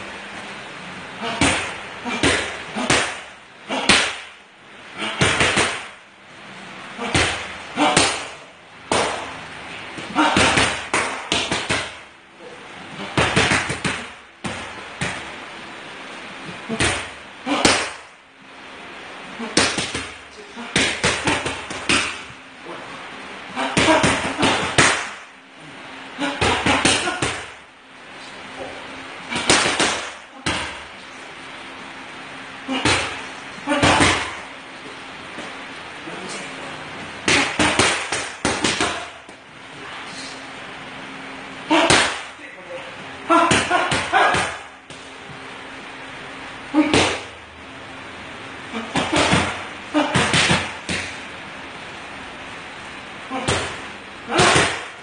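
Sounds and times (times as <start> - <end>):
boxing gloves hitting focus mitts: 1.2 - 4.4, 5.0 - 6.0, 7.0 - 9.4, 10.0 - 12.0, 13.0 - 15.3, 19.4 - 22.4, 23.6 - 25.2, 26.2 - 27.6, 29.3 - 30.8, 32.7 - 34.4, 37.2 - 39.4, 41.7 - 42.3, 43.3 - 45.1, 48.8 - 51.2, 53.3 - 55.0.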